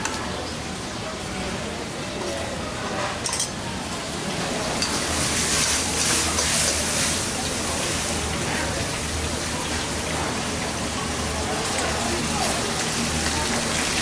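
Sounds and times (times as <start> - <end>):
metal spoon clinking on steel: 3.2 - 3.6
sauce sizzling in a wok: 4.0 - 14.0.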